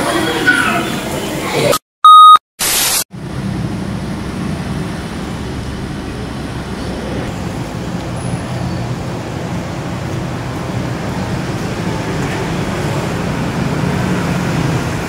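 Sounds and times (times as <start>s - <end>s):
loud electronic beep: 2.0s - 2.4s
traffic rumble: 3.2s - 15.0s.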